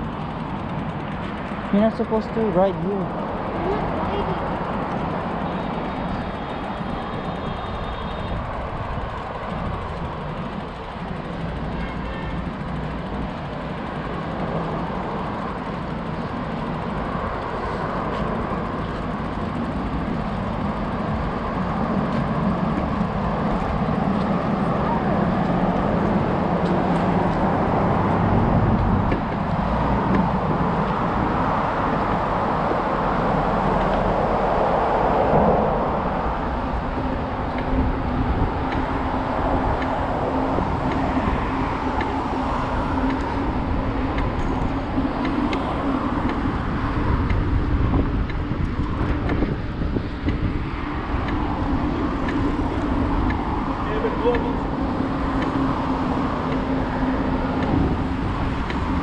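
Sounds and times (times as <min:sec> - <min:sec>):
wind rush on microphone: 0:13.1 - 0:59.0.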